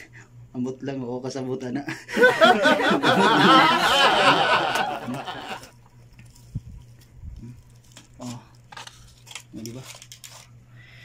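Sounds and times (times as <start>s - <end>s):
people laughing heartily: 2.1s - 5.7s.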